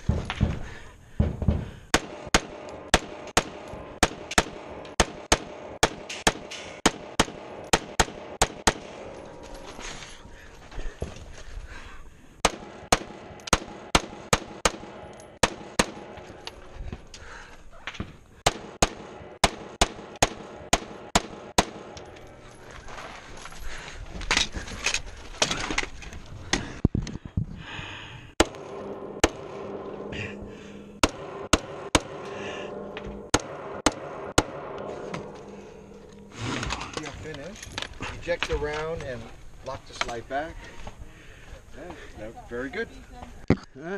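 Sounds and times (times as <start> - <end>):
rapid rifle shots: 1.9 - 9.0, 12.4 - 16.2, 18.4 - 22.0
rustling and clatter: 21.7 - 27.6, 34.8 - 41.0.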